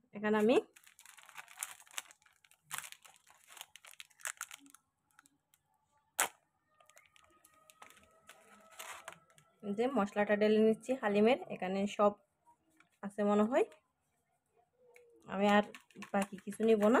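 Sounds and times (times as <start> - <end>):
foil sachet tearing and crinkling: 0.7 - 5.3, 6.9 - 9.3.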